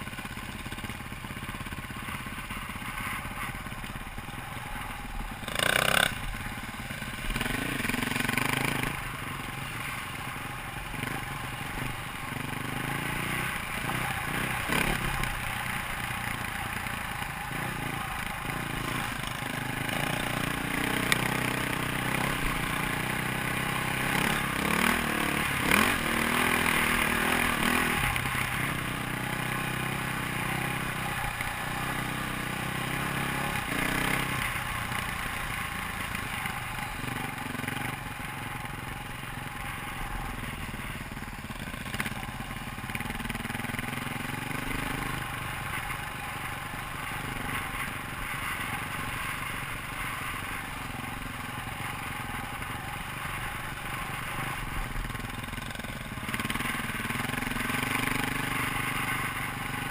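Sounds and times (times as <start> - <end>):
dirt bike engine revving: 2.4 - 34.6.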